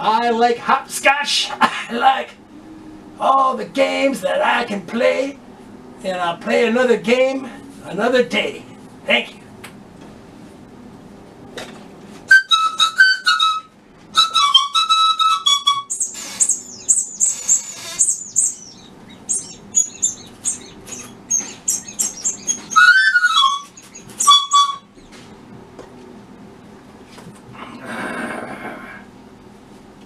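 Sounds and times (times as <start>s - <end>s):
bird-like whistling: 12.3s - 25.2s.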